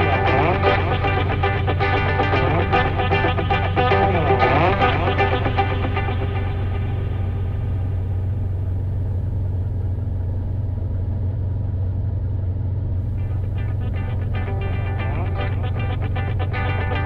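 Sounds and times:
guitar music: 0.0s - 8.3s, 13.1s - 17.0s
light aircraft engine drone: 0.0s - 17.0s.

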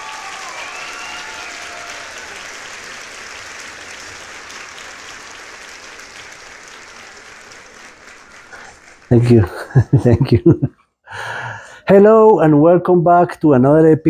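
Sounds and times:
crowd applause: 0.0s - 10.5s
people cheering: 0.0s - 10.6s.

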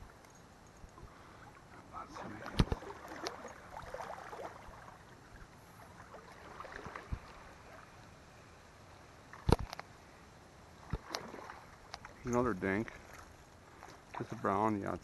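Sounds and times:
water sloshing around legs: 0.1s - 8.0s, 10.8s - 15.0s.

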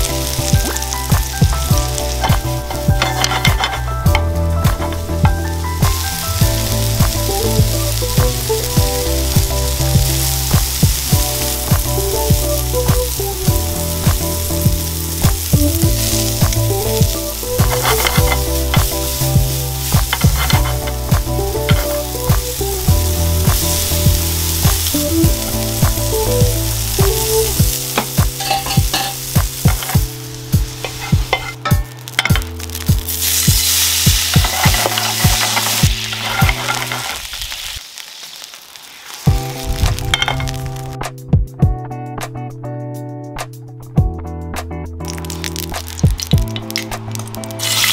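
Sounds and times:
mushrooms sizzling in a pan: 0.0s - 41.0s, 45.1s - 47.9s
water hissing in hot pan: 0.0s - 41.0s, 45.1s - 47.9s
metal tongs clicking on pan: 2.2s - 4.2s, 28.0s - 30.0s, 30.8s - 32.6s, 34.2s - 37.2s.

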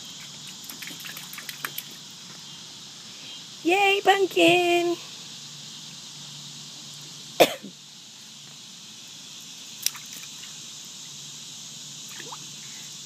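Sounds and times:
high insect-like hiss: 0.0s - 13.0s
person coughing: 7.4s - 7.7s.

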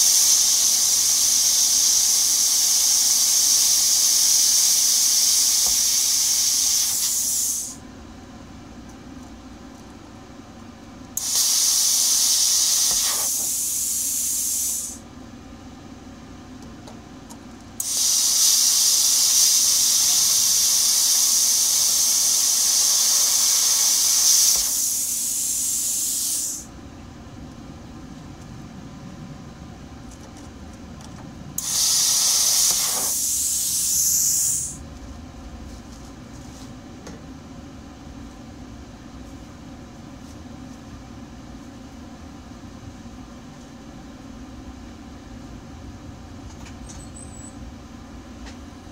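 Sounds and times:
plasma cutter hissing: 0.0s - 7.8s, 11.2s - 15.0s, 17.8s - 26.7s, 31.6s - 34.8s
steady low hum: 0.0s - 48.9s.

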